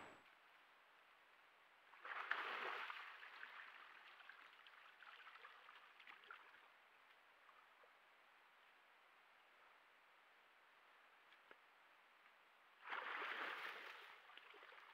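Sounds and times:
water sloshing and dripping: 1.9s - 7.6s, 12.8s - 14.9s
water splashing: 2.0s - 6.6s, 12.8s - 14.9s.

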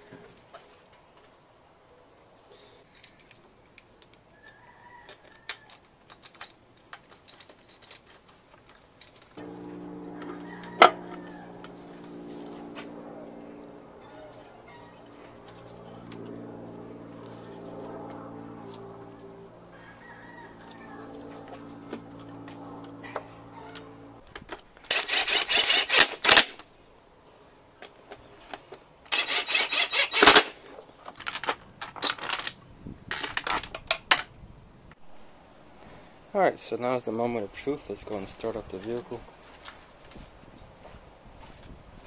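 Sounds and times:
steady multi-tone hum: 9.3s - 26.6s.

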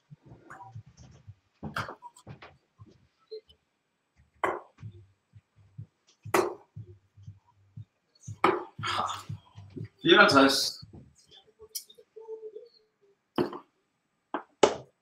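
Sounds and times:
darts striking a dartboard: 6.4s - 6.6s.

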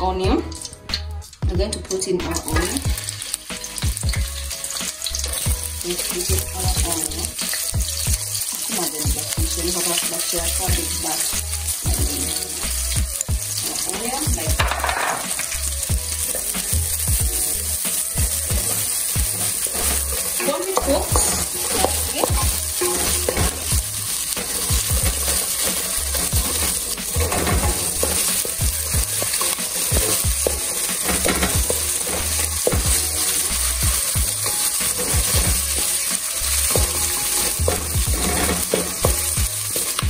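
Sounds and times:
onions sizzling in hot oil: 0.0s - 40.0s
wooden spoon scraping a pot: 17.5s - 40.0s.

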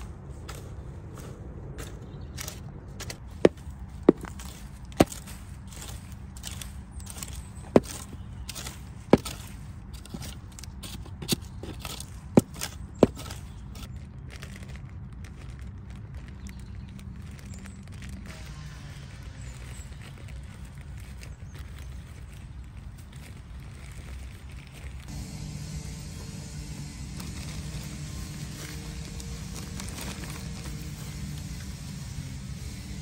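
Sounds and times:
garden tool chopping soil: 0.5s - 13.9s.

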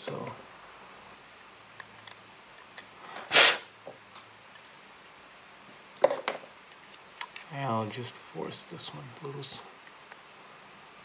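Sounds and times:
short loud rasp: 3.3s - 3.7s.

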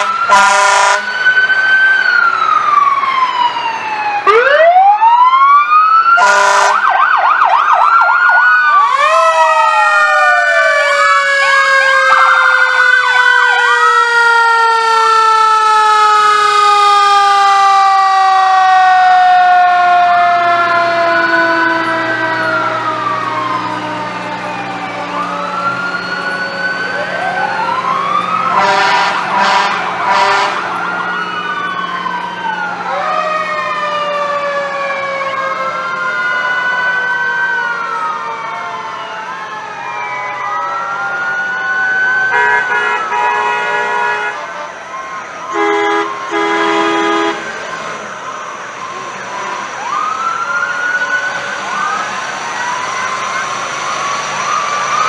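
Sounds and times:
short horn blasts: 0.0s - 1.0s, 6.2s - 6.8s, 28.6s - 30.6s, 42.3s - 44.4s, 45.5s - 47.4s
sirens wailing and yelping: 0.0s - 55.0s.

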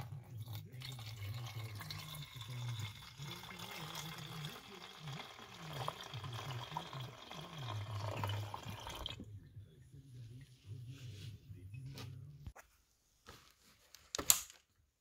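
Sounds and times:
liquid pouring into tank: 0.0s - 9.3s.

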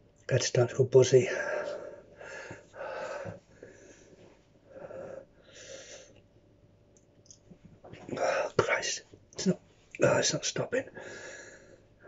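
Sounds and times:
man breathing hard: 1.3s - 6.2s, 11.0s - 12.0s.

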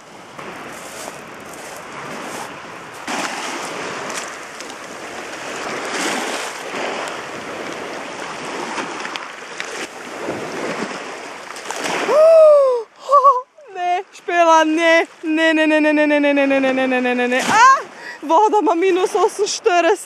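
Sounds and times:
waves washing over pebbles: 0.0s - 12.6s, 13.8s - 19.9s
woman squealing: 12.1s - 13.6s, 17.5s - 17.9s.

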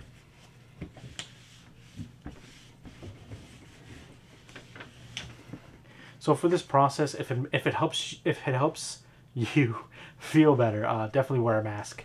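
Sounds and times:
faint rubbing: 0.0s - 5.8s.

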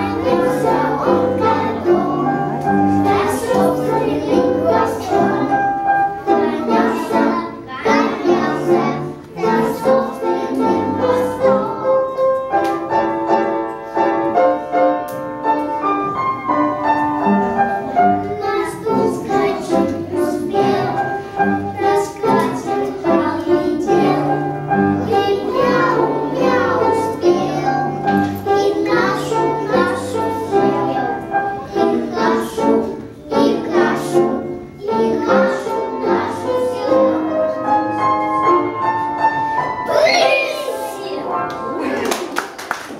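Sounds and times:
boys singing together: 0.0s - 12.0s, 18.4s - 37.4s.

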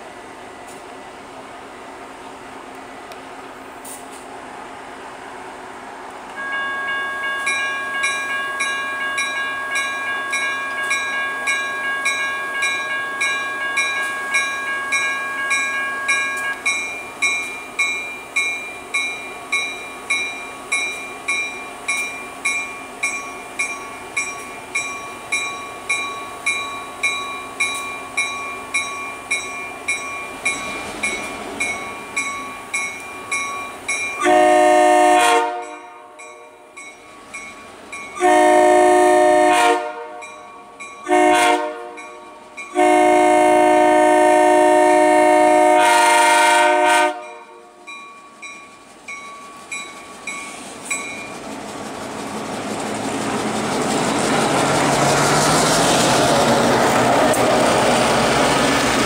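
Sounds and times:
crossing warning bell ringing: 6.4s - 53.2s.

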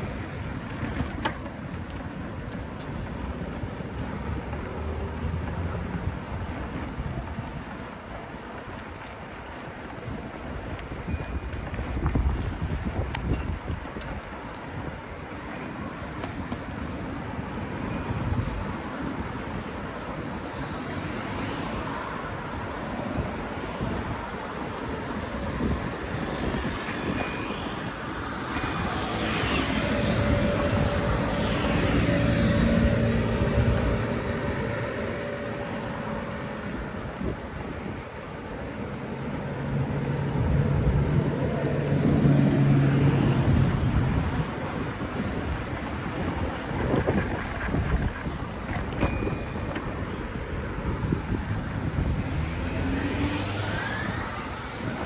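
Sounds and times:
steady rushing noise: 0.0s - 55.0s
street traffic: 0.0s - 55.0s
motor vehicle passing: 24.9s - 37.7s, 38.3s - 55.0s.

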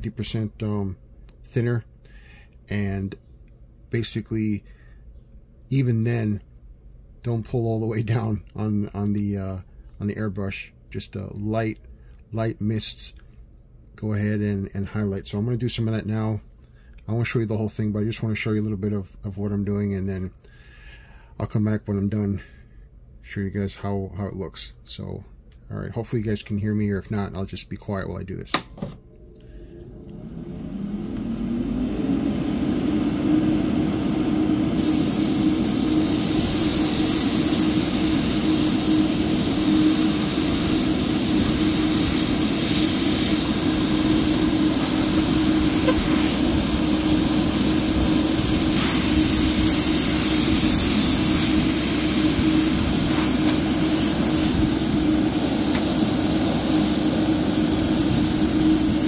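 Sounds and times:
compressor motor humming: 28.9s - 59.0s
airbrush spraying hiss: 34.8s - 59.0s.

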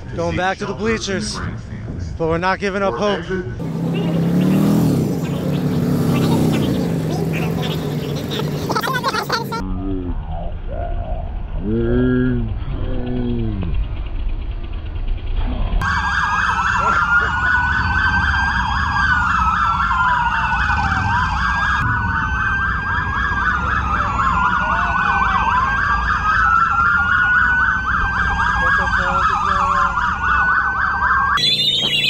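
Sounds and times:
police sirens yelping and wailing: 3.0s - 9.6s, 15.8s - 32.0s.

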